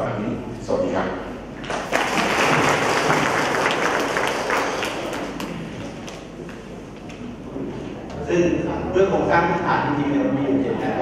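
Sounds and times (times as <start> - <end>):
audience applauding: 1.6 - 6.2.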